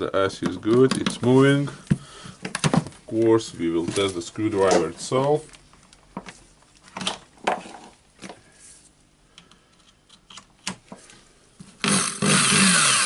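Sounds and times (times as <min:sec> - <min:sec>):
screw gun motor running: 0:11.8 - 0:13.0.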